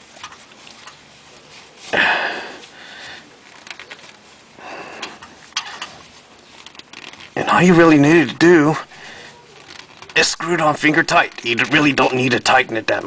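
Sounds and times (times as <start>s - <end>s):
noisy sniffs or breaths: 1.5s - 3.4s.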